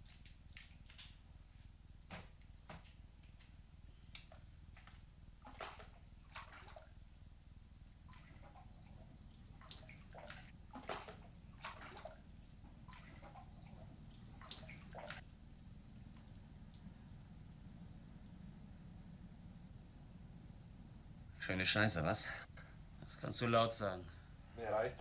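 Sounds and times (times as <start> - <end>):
low steady hum: 0.0 - 25.0
water splashing: 4.2 - 17.2.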